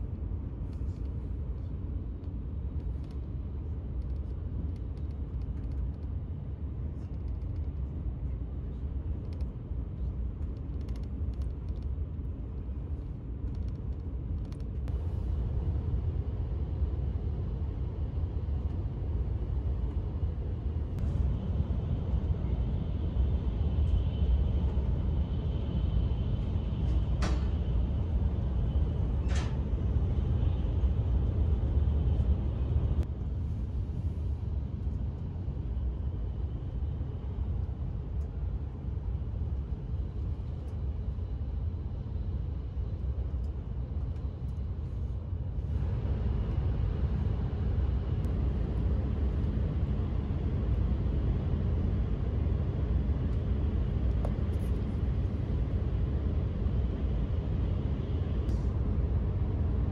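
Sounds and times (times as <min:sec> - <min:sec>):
train cabin rumble: 0:18.5 - 0:34.3.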